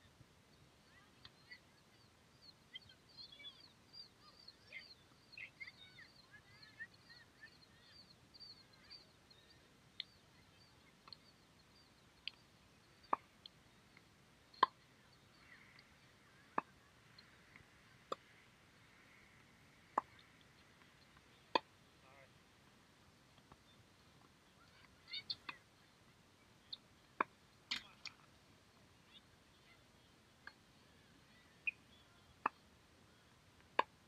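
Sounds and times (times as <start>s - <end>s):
birds chirping: 0.0s - 34.0s
tennis balls struck by rackets: 19.9s - 20.2s.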